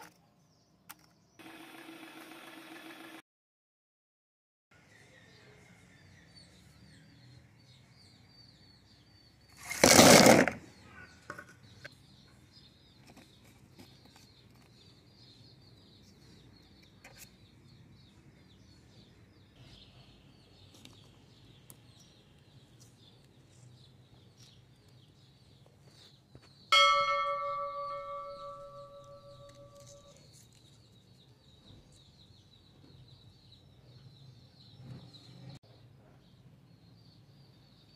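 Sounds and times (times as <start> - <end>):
notification bell chime: 26.8 - 30.1.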